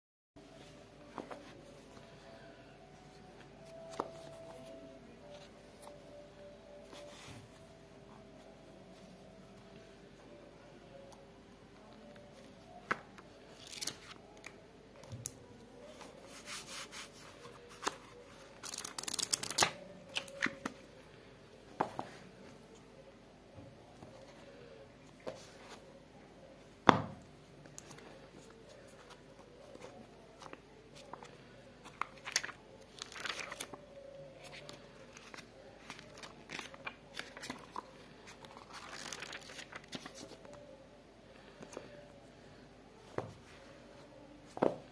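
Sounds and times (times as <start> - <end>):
paper pages rustling: 13.5 - 14.2, 15.9 - 20.7, 28.7 - 33.8, 34.4 - 40.6.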